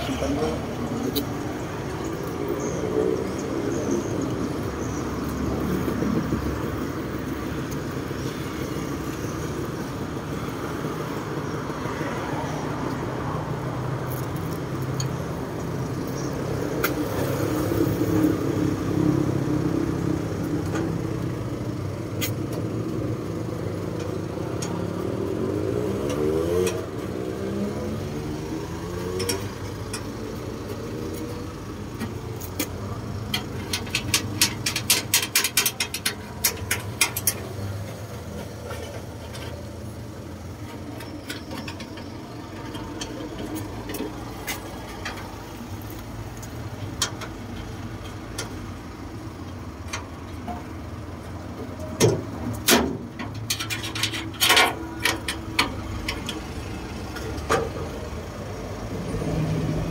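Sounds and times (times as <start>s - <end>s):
road traffic: 0.0s - 59.9s
vehicle passing close: 23.8s - 48.5s, 53.5s - 59.9s.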